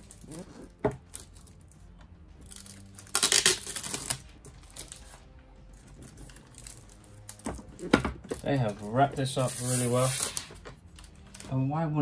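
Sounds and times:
plastic wrapping rustling: 0:00.0 - 0:11.6
plastic case knocking down: 0:07.4 - 0:08.6.

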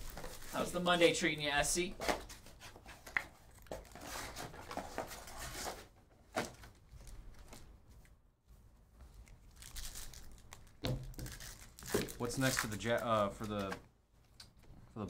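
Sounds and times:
paper and foil rustling: 0:00.0 - 0:01.3, 0:09.5 - 0:13.7
foil wrapper crinkling: 0:09.5 - 0:13.6.

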